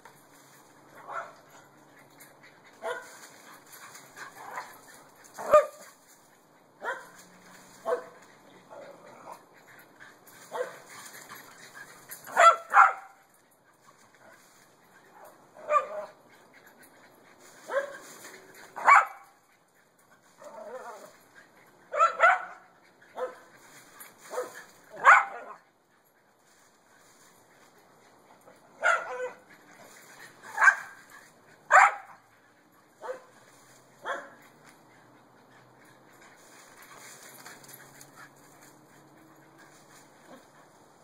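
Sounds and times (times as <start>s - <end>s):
dogs barking: 1.0s - 1.8s, 2.7s - 3.2s, 4.2s - 5.8s, 6.8s - 7.2s, 7.8s - 9.5s, 10.4s - 10.9s, 12.1s - 13.3s, 15.1s - 16.8s, 18.7s - 19.5s, 21.9s - 23.6s, 24.3s - 25.6s, 28.6s - 33.4s, 34.0s - 34.6s.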